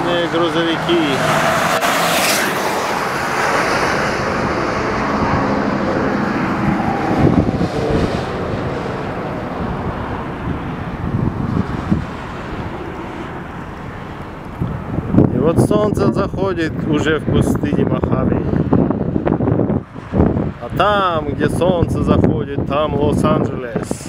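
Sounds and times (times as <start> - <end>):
truck passing close by: 0.0 - 15.3
road and wind noise: 0.0 - 24.0
wind buffeting microphone: 1.5 - 24.0.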